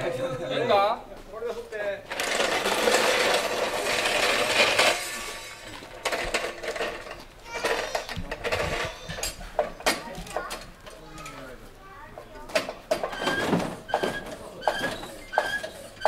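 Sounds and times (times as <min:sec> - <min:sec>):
heavy wooden float rattling on wheels: 0:02.1 - 0:09.2.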